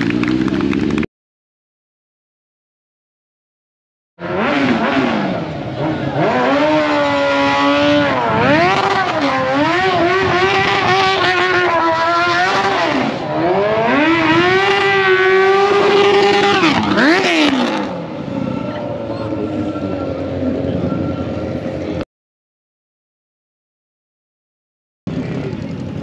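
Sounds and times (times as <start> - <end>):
motorcycle engine revving hard: 4.2 - 21.6.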